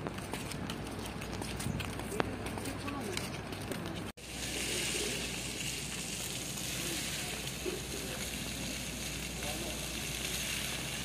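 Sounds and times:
fountain water splashing: 0:04.2 - 0:11.0.

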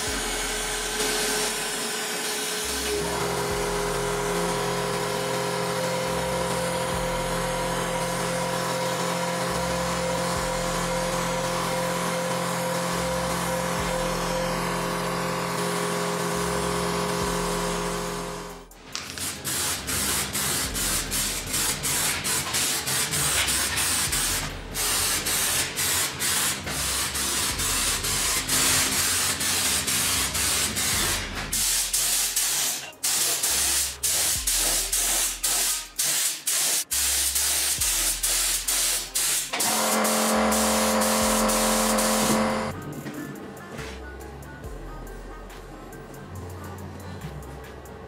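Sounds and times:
spray hissing in bursts: 0:19.0 - 0:42.7.

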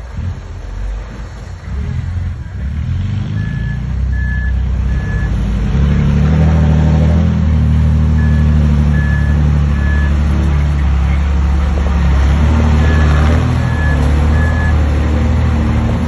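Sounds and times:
diesel engine running: 0:00.0 - 0:16.0
backup alarm beeping: 0:03.4 - 0:05.4, 0:08.2 - 0:10.3, 0:12.8 - 0:14.9.

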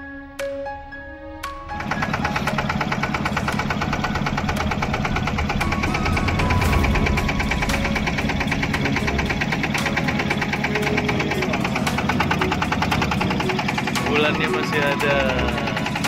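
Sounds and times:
boat engine knocking: 0:01.8 - 0:16.0.

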